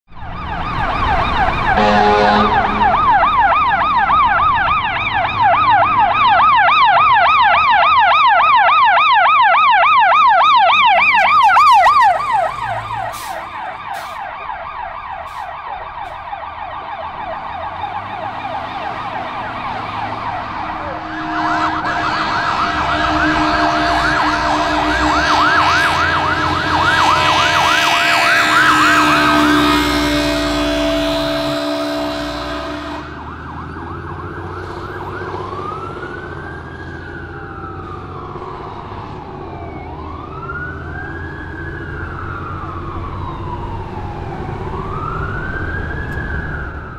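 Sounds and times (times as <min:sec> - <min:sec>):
fire truck yelp siren: 0:00.0 - 0:46.9
second fire truck siren: 0:00.1 - 0:46.9
fire truck horn blast: 0:01.7 - 0:03.6, 0:11.0 - 0:14.3, 0:15.2 - 0:16.2, 0:20.0 - 0:33.4
steady horn tone: 0:01.8 - 0:03.6, 0:20.8 - 0:33.2.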